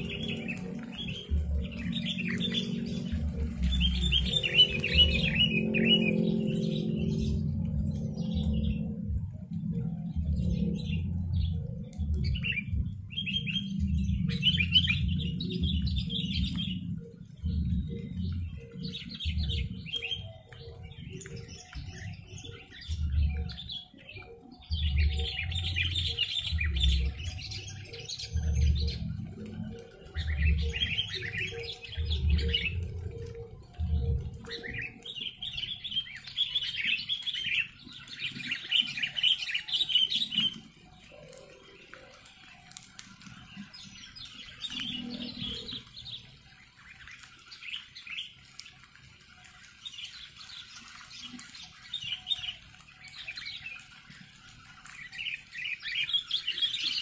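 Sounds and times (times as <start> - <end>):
bulbuls calling: 0.0 - 57.0
low thudding rumble: 6.3 - 16.1.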